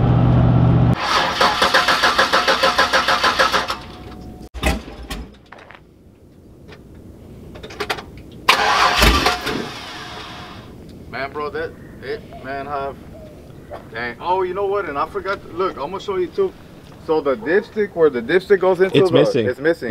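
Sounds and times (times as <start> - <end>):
engine cranking on starter: 0.9 - 4.0, 8.5 - 10.7.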